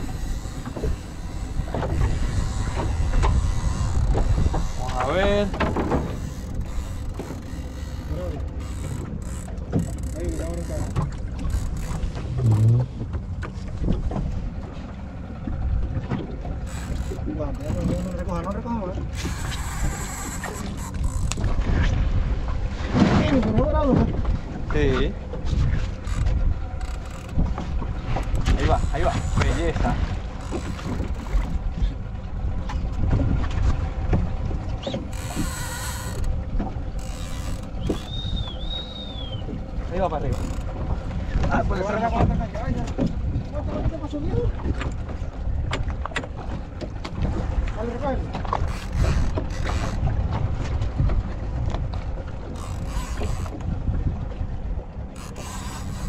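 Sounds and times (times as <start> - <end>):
fishing reel drag buzzing: 0.0 - 12.7, 16.6 - 21.5, 26.0 - 27.4, 28.7 - 29.7, 30.4 - 31.6, 35.0 - 39.4, 48.6 - 50.0, 52.5 - 53.6, 55.1 - 56.0
boat engine rumble: 0.0 - 56.0
water sloshing against hull: 0.0 - 56.0
wind: 0.0 - 56.0.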